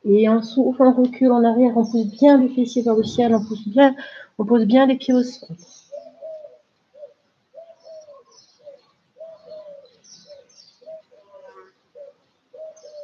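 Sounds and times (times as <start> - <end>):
small birds chirping: 0.0 - 13.0
dove cooing: 5.9 - 13.0.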